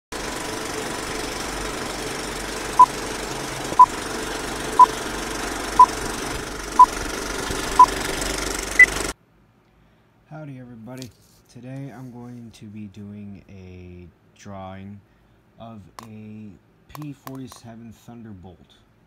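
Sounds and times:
film projector whir with crackle: 0.1s - 9.2s.

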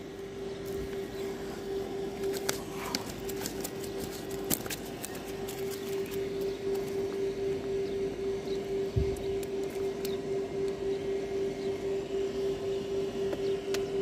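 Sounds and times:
steady droning hum: 0.0s - 14.0s
net clicks and rustles: 2.1s - 7.2s.

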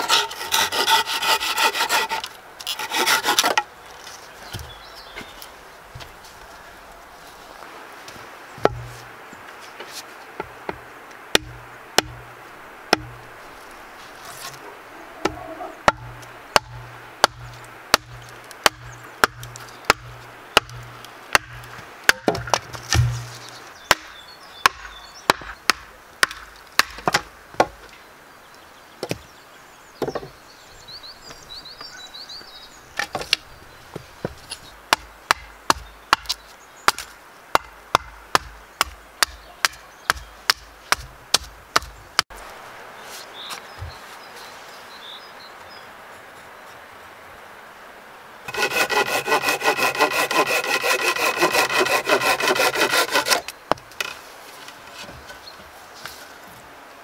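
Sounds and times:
wooden mallet blows on log: 15.2s - 17.4s.

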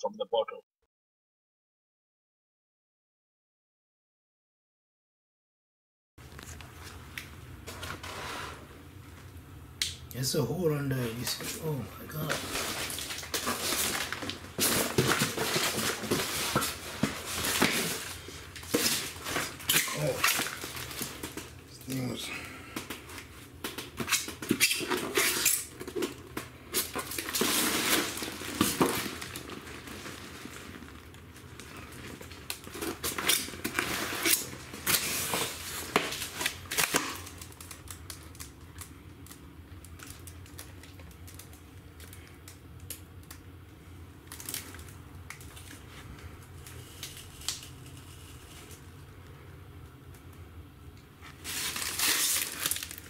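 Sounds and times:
polystyrene foam cracking: 12.2s - 22.2s, 22.9s - 43.4s, 44.2s - 49.0s, 51.2s - 53.0s.

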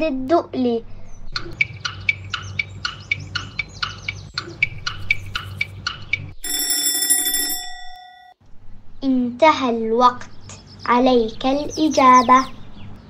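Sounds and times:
chirp-like countdown ticks: 1.3s - 6.4s
alarm clock bell ringing: 6.4s - 8.4s.

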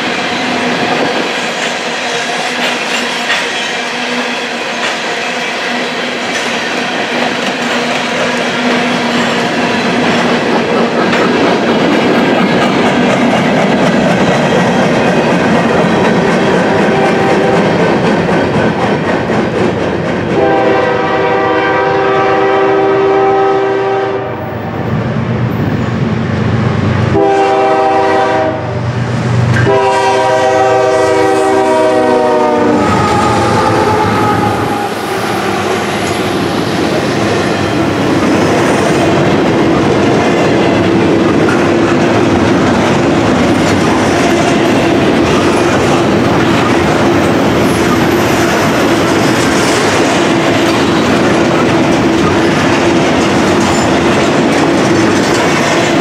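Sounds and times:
freight train rumble and clack: 0.0s - 56.0s
locomotive air horn blasts: 20.4s - 24.7s, 27.1s - 28.8s, 29.6s - 35.8s.

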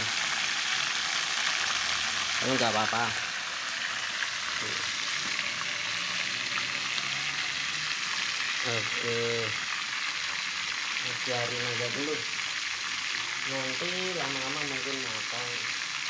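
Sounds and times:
fish sizzling in hot oil: 0.0s - 16.0s.

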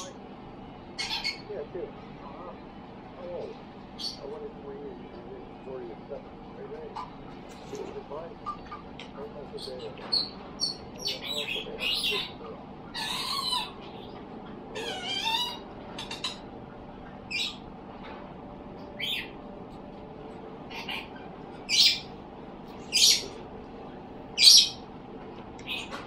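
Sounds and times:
bird squeaky calls: 1.0s - 1.5s, 4.0s - 4.3s, 8.4s - 8.9s, 9.6s - 14.1s, 14.7s - 16.4s, 17.3s - 17.6s, 19.0s - 19.4s, 20.7s - 22.1s, 22.8s - 23.4s, 24.4s - 24.8s, 25.6s - 26.0s
bird warbling call: 1.0s - 1.6s, 4.0s - 4.3s, 6.9s - 17.6s, 19.0s - 19.4s, 20.7s - 22.1s, 22.8s - 23.4s, 24.4s - 24.8s, 25.6s - 26.0s.

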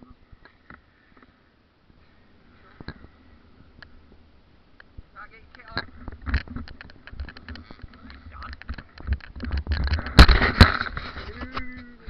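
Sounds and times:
loud thumps: 5.7s - 11.0s.

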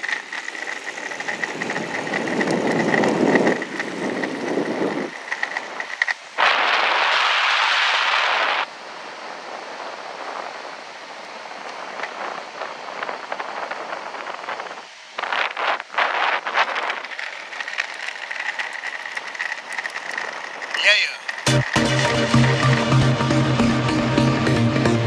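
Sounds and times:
skateboard wheels rolling: 0.0s - 25.0s
wind on microphone: 1.4s - 17.3s.

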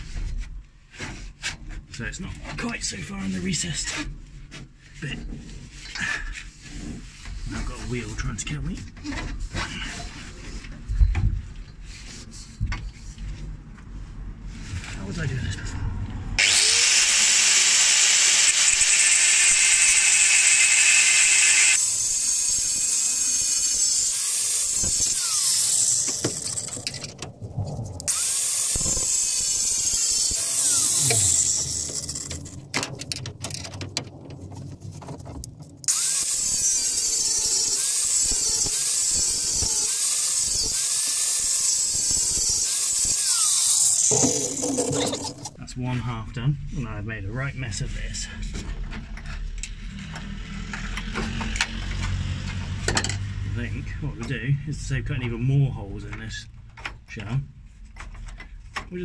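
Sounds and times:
angle grinder cutting metal: 16.4s - 27.2s, 28.1s - 32.7s, 35.9s - 45.6s.

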